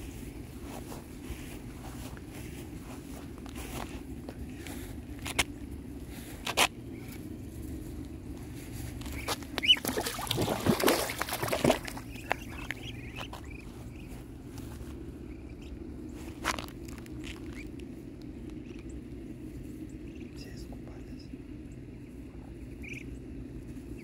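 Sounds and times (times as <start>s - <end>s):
ducklings peeping: 0.0s - 24.0s.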